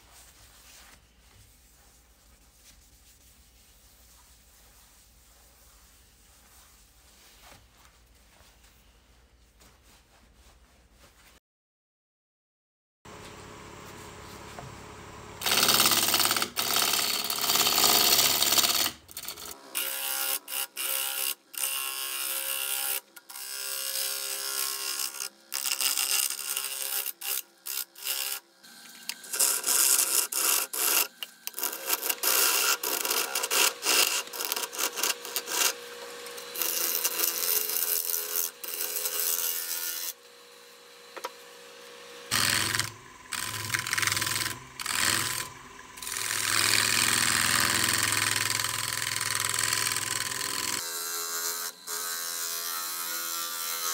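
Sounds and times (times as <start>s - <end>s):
lathe tool cutting wood: 13.1s - 53.9s.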